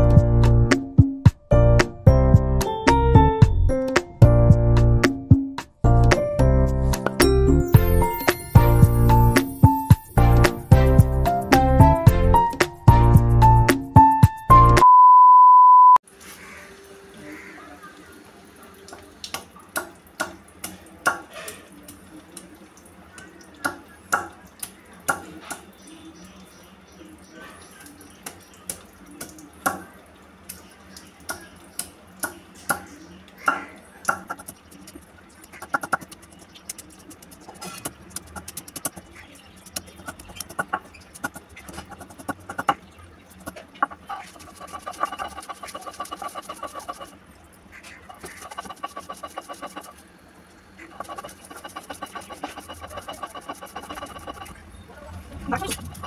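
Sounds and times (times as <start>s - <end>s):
fast buzzy rhythm: 35.6s - 42.8s, 43.4s - 47.2s, 48.1s - 50.0s, 50.9s - 54.6s.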